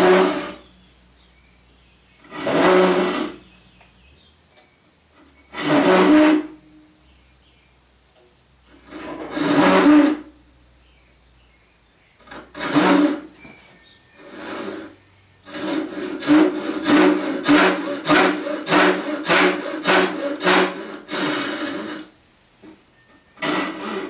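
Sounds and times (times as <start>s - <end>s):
hand saw cutting wood: 0.0s - 0.7s, 2.2s - 3.5s, 5.5s - 6.6s, 8.8s - 10.3s, 12.3s - 13.3s, 14.2s - 22.1s, 23.4s - 24.0s.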